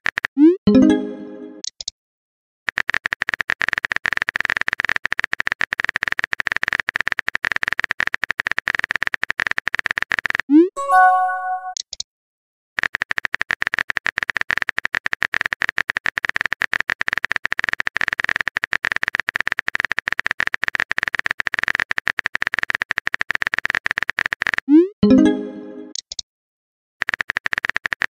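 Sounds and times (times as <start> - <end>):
message sent chime: 0.7 - 1.6, 10.8 - 11.8, 25.0 - 25.9.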